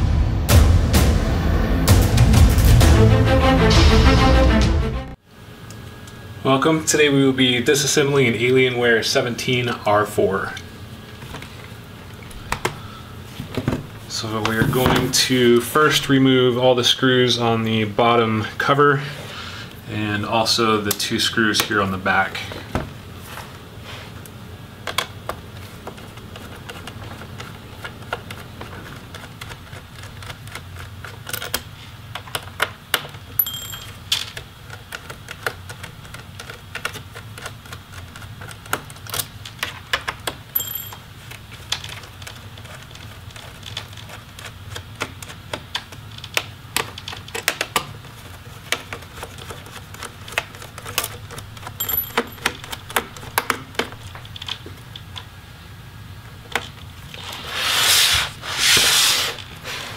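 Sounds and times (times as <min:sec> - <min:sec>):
metallic pings: 0:33.4 - 0:34.0, 0:40.6 - 0:41.0, 0:51.8 - 0:52.5
laptop scraping on table: 0:57.1 - 0:59.9.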